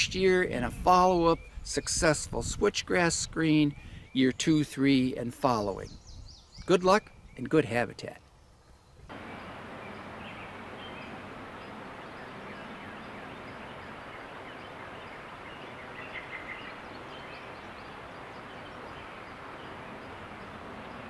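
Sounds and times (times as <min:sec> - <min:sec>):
outdoor background hiss: 0:00.0 - 0:21.0
faint bird chirps: 0:08.6 - 0:21.0.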